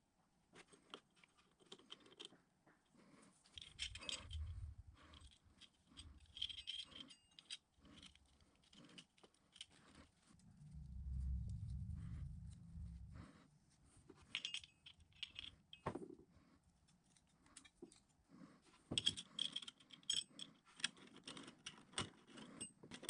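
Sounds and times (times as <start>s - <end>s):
small metal clicks and scrapes: 0.6s - 2.4s, 3.2s - 10.4s, 14.2s - 16.1s, 16.8s - 23.0s
low rumble: 3.7s - 5.2s, 10.3s - 15.3s.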